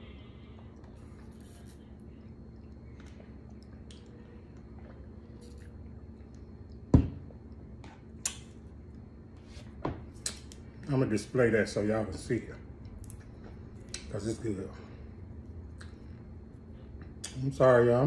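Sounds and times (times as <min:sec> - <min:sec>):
cup knocking on a table: 0:06.9 - 0:07.2.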